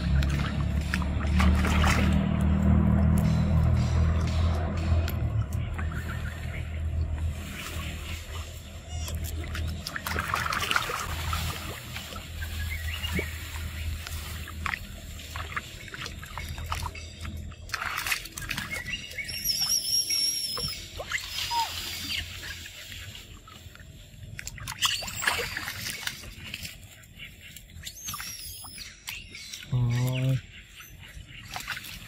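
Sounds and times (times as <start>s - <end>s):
water splashing and sloshing: 0.0s - 32.0s
monkeys high-pitched calls: 19.3s - 22.4s.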